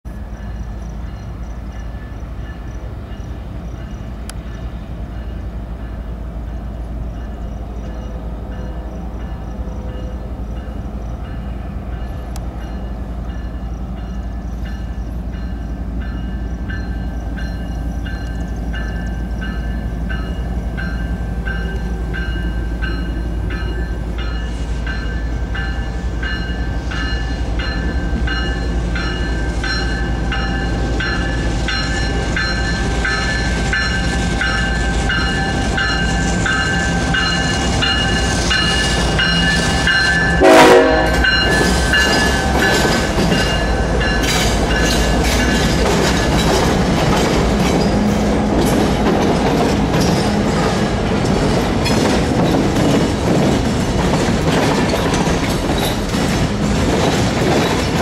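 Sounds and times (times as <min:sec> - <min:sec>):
diesel locomotive engines rumbling: 0:00.0 - 0:58.0.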